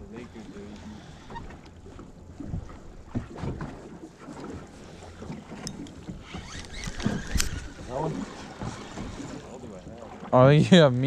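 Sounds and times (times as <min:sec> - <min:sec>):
wind rumbling on microphone: 0:05.2 - 0:09.4.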